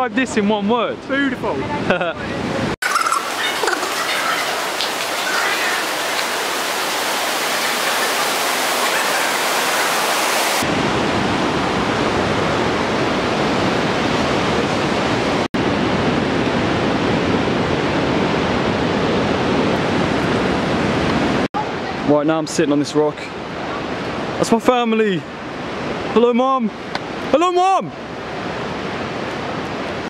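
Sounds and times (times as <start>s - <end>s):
whitewater rushing over boulders: 3.1s - 16.6s.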